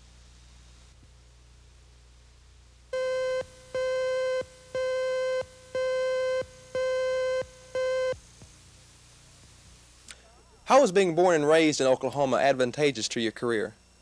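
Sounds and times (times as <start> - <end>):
faint low hum: 0.0 - 14.0
electronic beep tone: 3.0 - 8.2.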